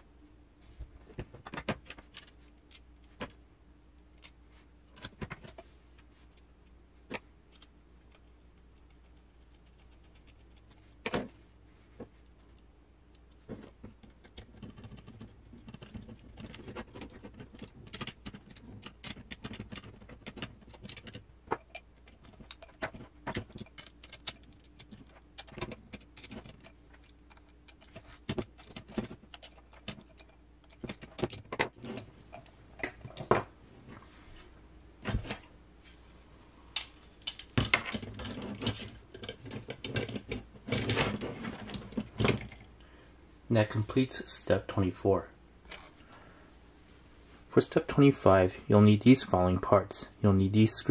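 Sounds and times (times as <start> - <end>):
small metal parts clinking: 14.0 - 33.4, 36.8 - 42.7.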